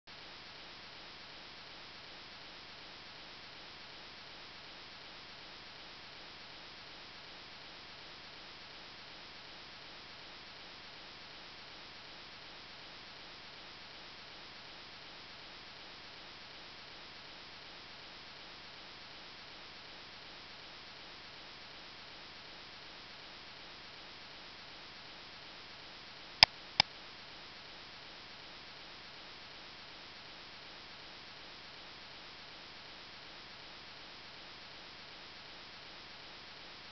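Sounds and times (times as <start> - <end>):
faint recording hiss: 0.1 - 36.9.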